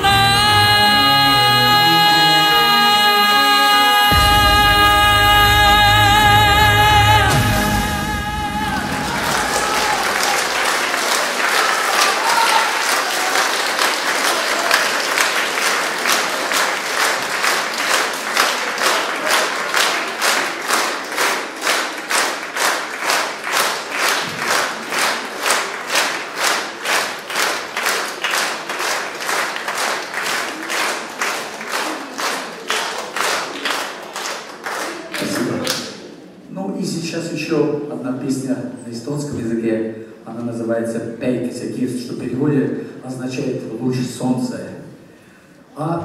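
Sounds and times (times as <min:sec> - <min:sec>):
audience applauding: 0:04.1 - 0:36.1
rhythmic clapping in unison: 0:04.1 - 0:36.1.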